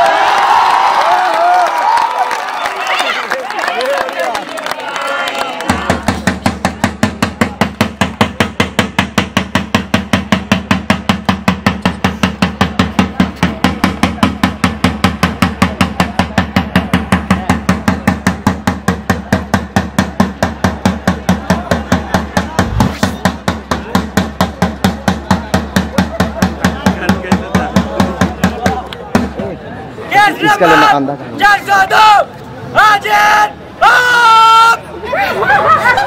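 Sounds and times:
drum beaten with a stick: 5.7 - 29.3.

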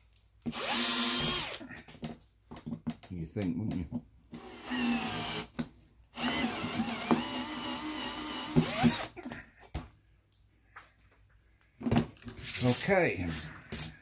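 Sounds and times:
cordless drill running: 0.5 - 1.6, 4.4 - 5.5, 6.2 - 9.2.

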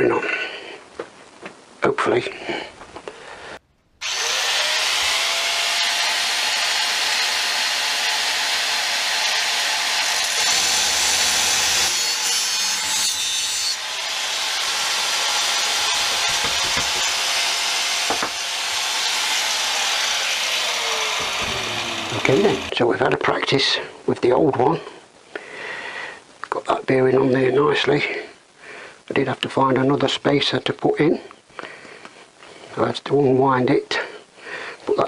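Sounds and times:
angle grinder cutting steel: 4.0 - 22.7.

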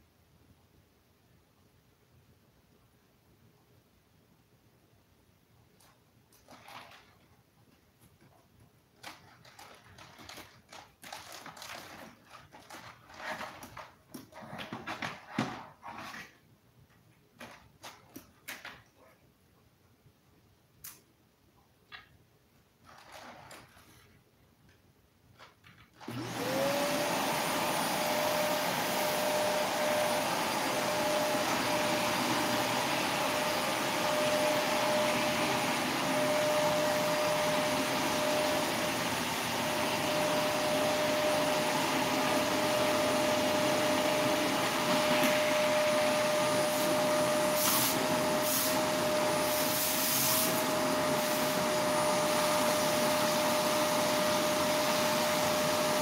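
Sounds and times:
loud even hiss: 46.7 - 51.4.

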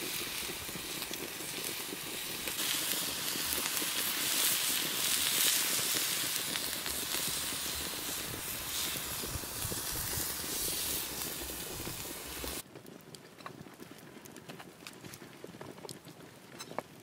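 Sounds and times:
campfire hissing and crackling: 0.0 - 16.3.

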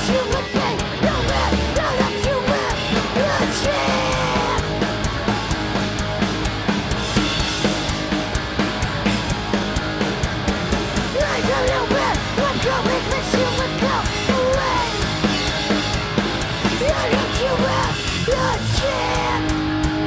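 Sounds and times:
shouted vocals: 0.0 - 5.3, 11.1 - 15.2, 16.7 - 19.7
punk band playing: 0.0 - 20.0.

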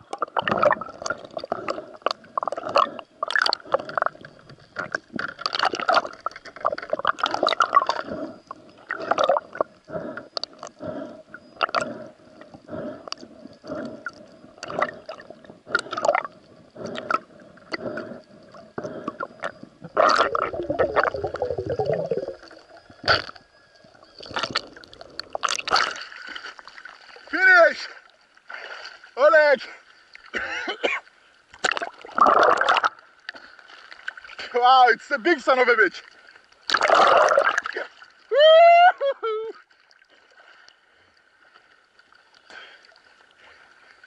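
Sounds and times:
muffled underwater swishes and gurgles: 0.0 - 27.3
gurgling water rush: 19.8 - 22.5.

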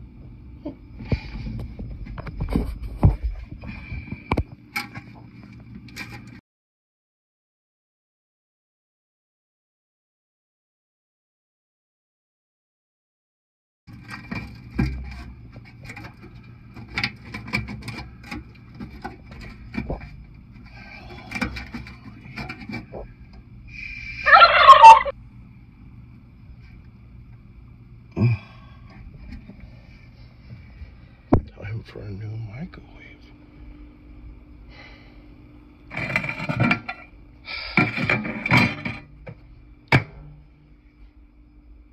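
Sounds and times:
steady low hum: 0.0 - 6.4, 13.9 - 41.9
loud warbling tone: 24.1 - 25.1.

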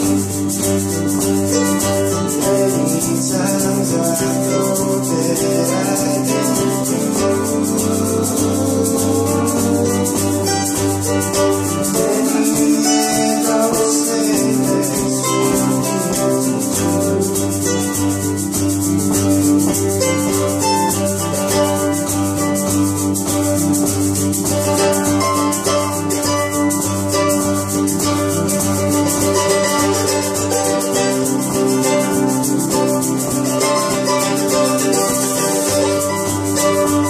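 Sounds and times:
acoustic guitars strummed: 0.0 - 37.0
harmonica notes: 4.7 - 21.4
repeating low bass line: 6.6 - 11.6.

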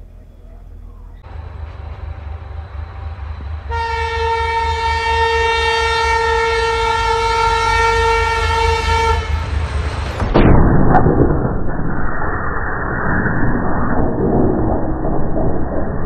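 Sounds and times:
low rumble: 0.0 - 6.3, 8.0 - 16.0
locomotive horn blast: 1.6 - 9.8.

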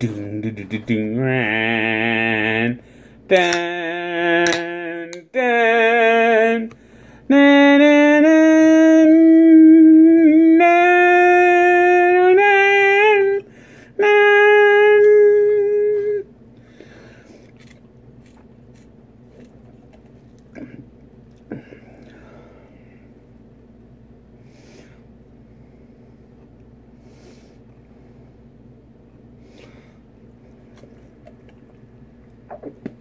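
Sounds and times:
man singing wordless tune: 0.0 - 16.3.

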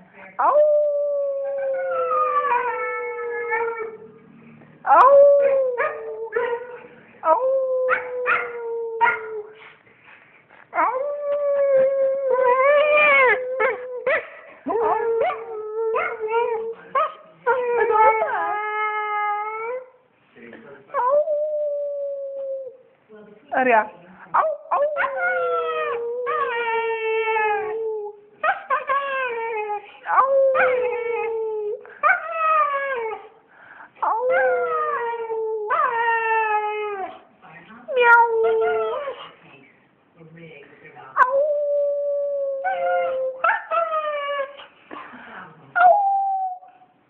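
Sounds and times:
dog howling: 24.7 - 33.3.

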